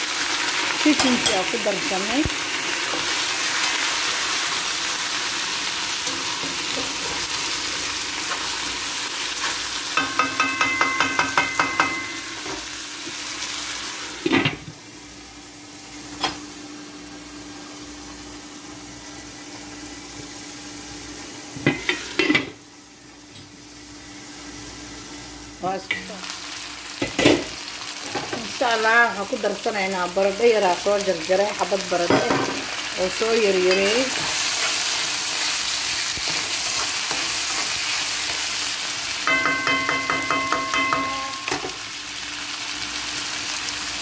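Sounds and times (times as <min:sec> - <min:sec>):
meat sizzling in a frying pan: 0:00.0 - 0:44.0
utensil tapping a pan: 0:10.0 - 0:12.1, 0:39.3 - 0:41.7.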